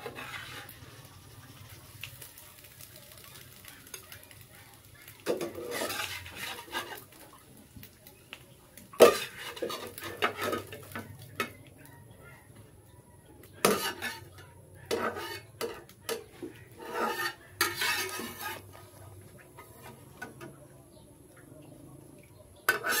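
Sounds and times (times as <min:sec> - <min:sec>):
metal spatula scraping a pan: 0:00.0 - 0:01.8, 0:05.2 - 0:07.4, 0:08.9 - 0:11.6, 0:13.6 - 0:20.6, 0:22.6 - 0:23.0.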